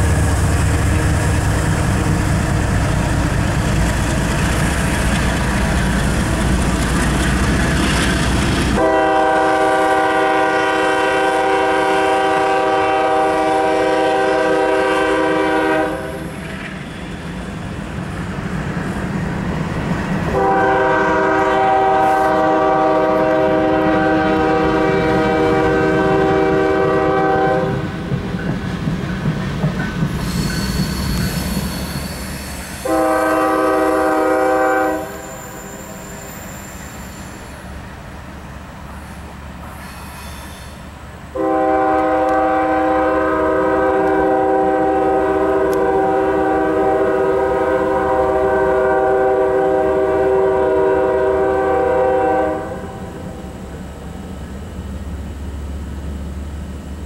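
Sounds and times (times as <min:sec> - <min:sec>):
freight cars rumbling: 0:00.0 - 0:09.2
locomotive air horn: 0:08.8 - 0:16.4, 0:20.3 - 0:28.0, 0:31.8 - 0:36.3, 0:40.2 - 0:53.3
high wheel squeal: 0:30.1 - 0:33.0, 0:35.0 - 0:37.8, 0:39.0 - 0:40.9.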